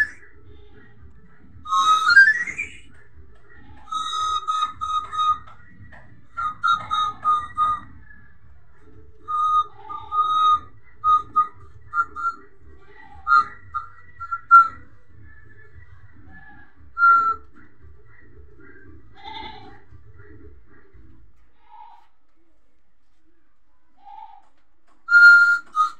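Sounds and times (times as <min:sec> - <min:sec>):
person whistling a tune: 0:00.0 - 0:00.2, 0:01.7 - 0:02.9, 0:03.9 - 0:08.3, 0:09.2 - 0:12.4, 0:13.2 - 0:15.8, 0:17.0 - 0:17.5, 0:25.1 - 0:25.9.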